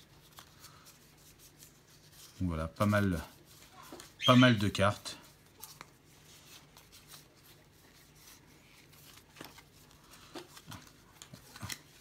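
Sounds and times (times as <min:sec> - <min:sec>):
cards sliding and flicking: 0:05.6 - 0:12.0.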